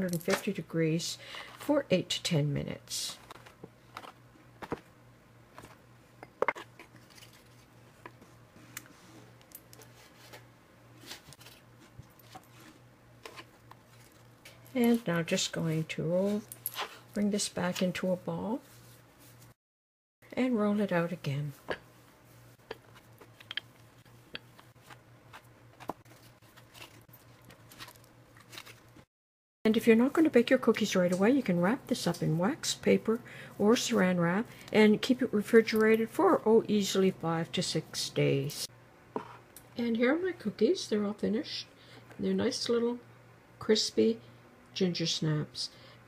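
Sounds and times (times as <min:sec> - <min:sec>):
low steady hum: 0:00.0 - 0:19.6, 0:20.3 - 0:29.1, 0:29.7 - 0:46.0
soft rubbing: 0:18.5 - 0:19.6.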